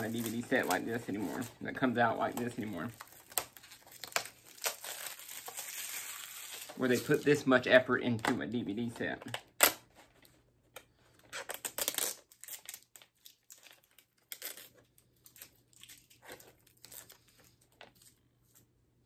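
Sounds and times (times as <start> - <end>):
packaging rustling and crinkling: 0.0 - 7.4.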